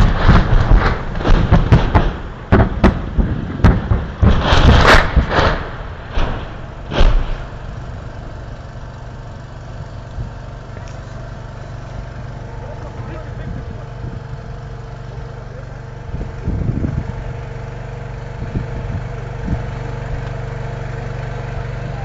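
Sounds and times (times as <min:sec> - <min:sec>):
artillery shells exploding: 0:00.0 - 0:08.2
steady low hum: 0:00.0 - 0:22.0.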